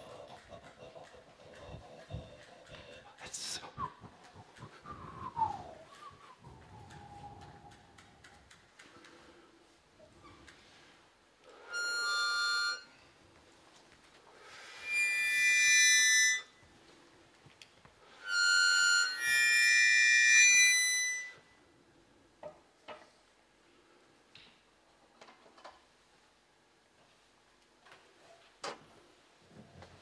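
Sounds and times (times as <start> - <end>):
harmonica chords: 11.6 - 13.1, 14.6 - 16.5, 18.1 - 21.4.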